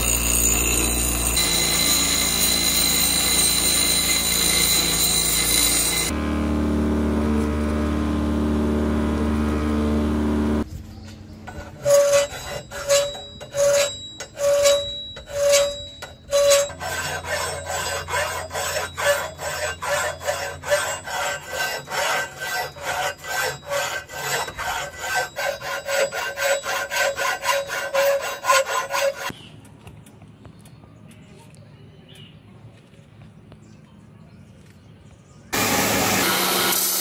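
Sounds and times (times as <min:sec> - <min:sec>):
hand file scraping steel: 0:11.4 - 0:29.3.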